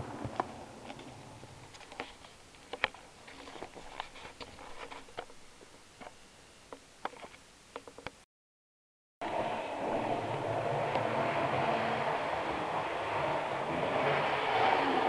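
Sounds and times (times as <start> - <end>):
train passing rumble: 9.2 - 15.0.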